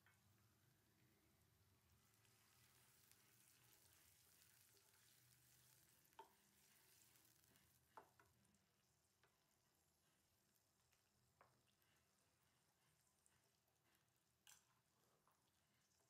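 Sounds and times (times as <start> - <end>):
onions sizzling in oil: 1.8 - 8.3.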